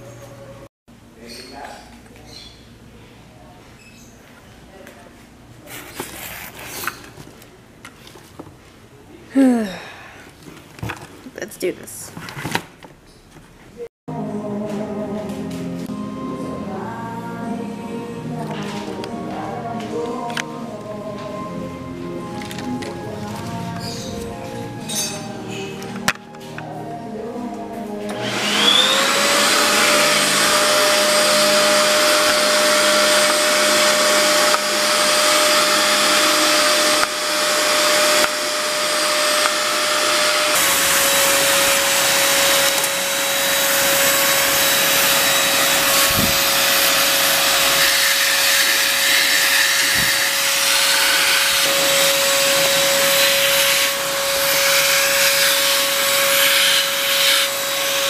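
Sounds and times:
vacuum cleaner motor whine: 28.0 - 58.0.

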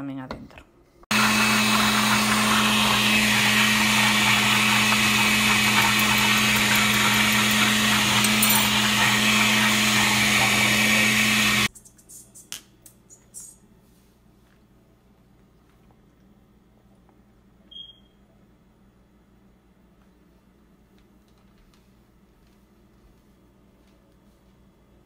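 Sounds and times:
blender running: 1.1 - 11.7.

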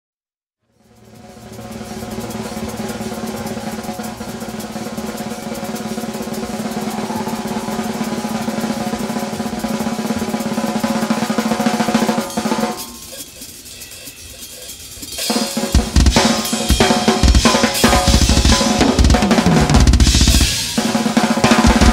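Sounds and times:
heavy bass drum strokes: 0.7 - 13.0, 15.1 - 21.9
drum roll: 0.7 - 21.9.

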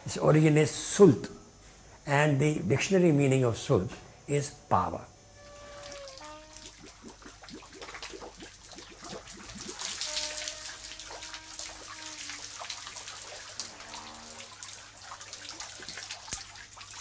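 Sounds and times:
water splashing and dripping in a well: 5.4 - 17.0.

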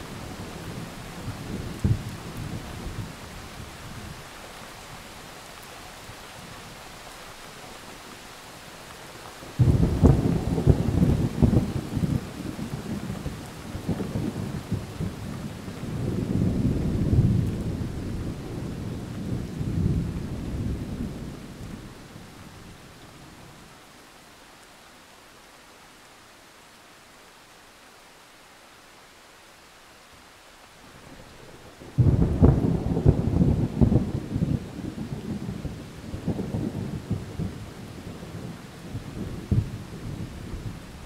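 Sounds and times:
steady rain hiss: 0.0 - 41.0
thunder clap and rumbling: 9.6 - 21.9, 31.9 - 41.0.

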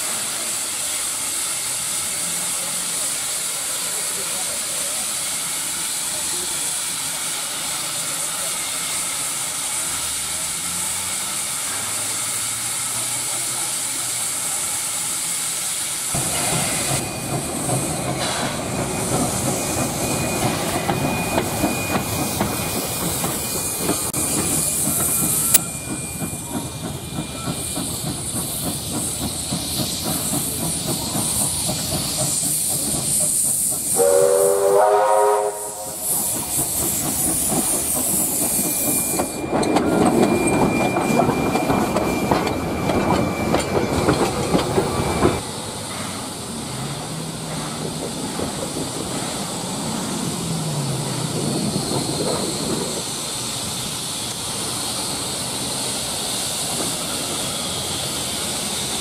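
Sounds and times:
steam hissing from locomotive: 0.0 - 59.0
steam whistle blast: 33.9 - 36.4.

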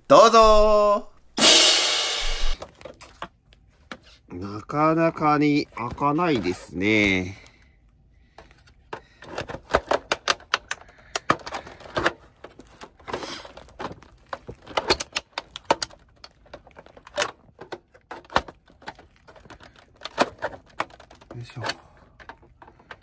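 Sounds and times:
plastic casing clicking and cracking: 8.8 - 23.0.

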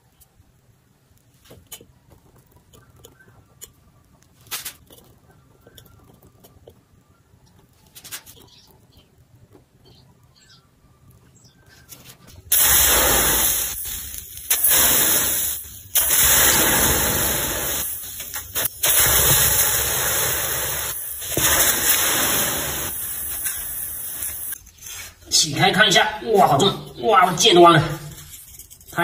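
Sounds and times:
water hissing on hot metal: 12.4 - 25.2.

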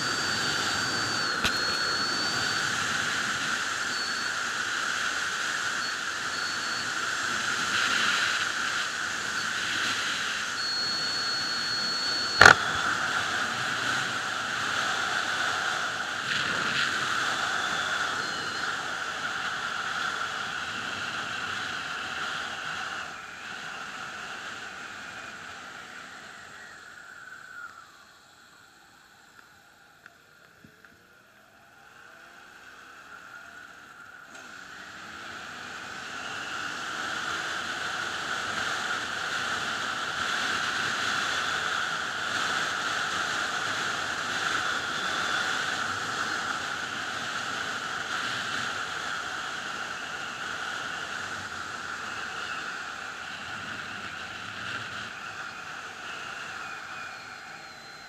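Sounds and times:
sharp click: 12.4 - 12.7.

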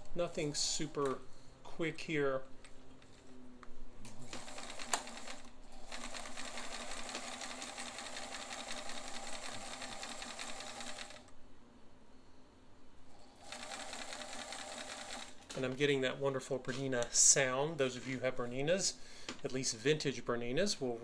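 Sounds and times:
sewing machine running: 4.1 - 11.3, 13.4 - 15.5.

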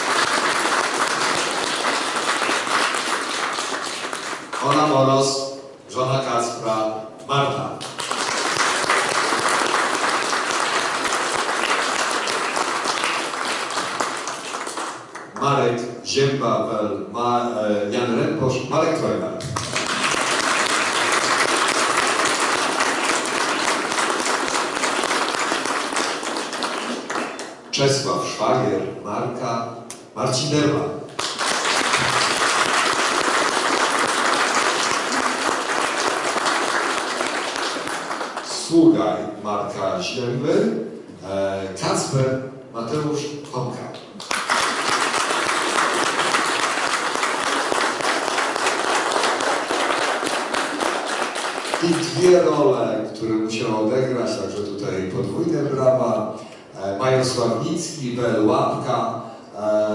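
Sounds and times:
audience applauding: 0.0 - 4.7, 7.9 - 15.3, 19.6 - 27.6, 31.2 - 38.5, 44.2 - 52.5.

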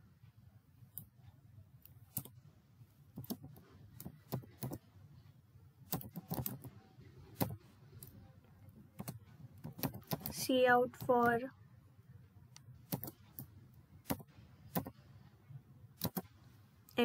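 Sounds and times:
keyboard keystroke clicks: 16.0 - 16.2.

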